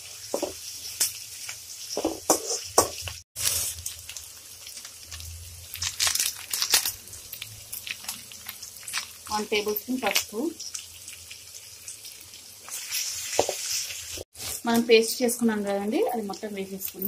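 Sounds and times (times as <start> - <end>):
food sizzling in hot oil: 0.0 - 17.0
spoon scraping a pan: 2.0 - 3.1.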